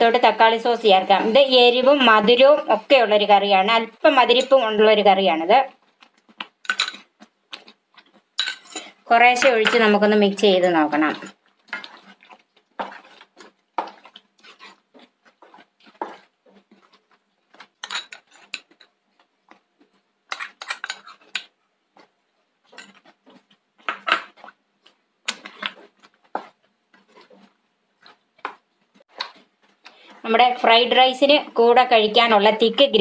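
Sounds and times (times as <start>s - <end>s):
wooden spatula scraping a pan: 0.4s - 3.1s, 8.1s - 21.3s, 21.9s - 24.7s, 25.3s - 31.0s.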